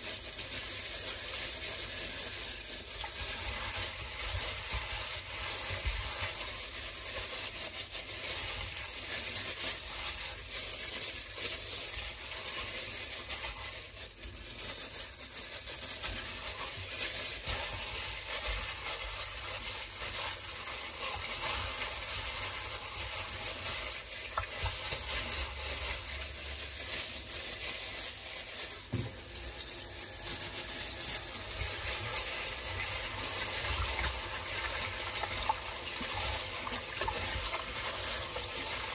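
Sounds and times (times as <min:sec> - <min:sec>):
gloved hands squishing wet chicken: 0:00.0 - 0:38.9
tap water running into bowl: 0:24.2 - 0:24.8.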